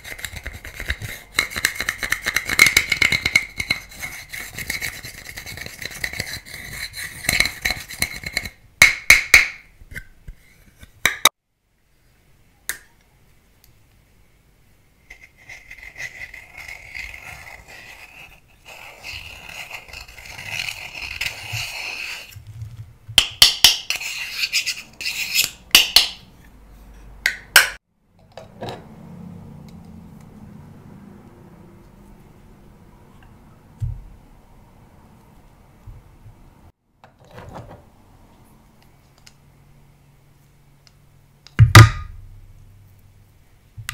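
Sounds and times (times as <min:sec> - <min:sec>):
tool scraping powder makeup: 0:00.0 - 0:08.6, 0:15.1 - 0:22.5, 0:23.2 - 0:26.2.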